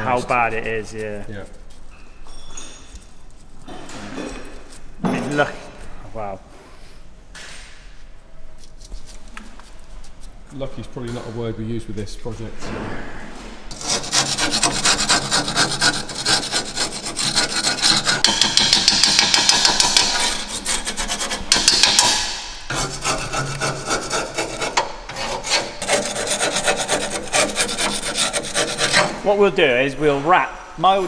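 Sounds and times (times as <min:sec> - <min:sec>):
screwdriver scraping rusty metal: 0:13.7 - 0:29.3.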